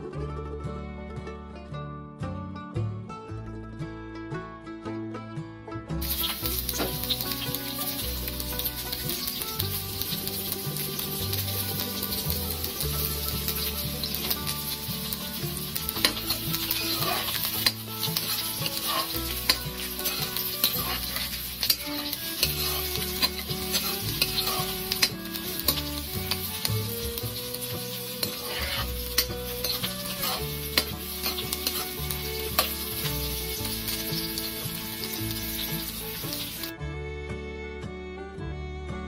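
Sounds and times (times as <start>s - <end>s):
background music: 0.0s - 39.0s
onions sizzling in hot oil: 6.0s - 36.7s
utensil clicking against pot: 8.4s - 33.7s.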